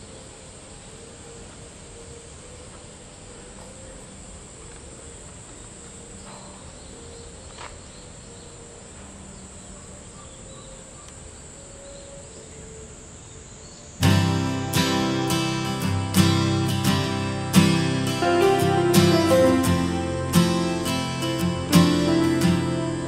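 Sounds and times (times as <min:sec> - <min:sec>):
insects droning: 0:00.0 - 0:23.0
strummed acoustic guitar music: 0:14.0 - 0:23.0.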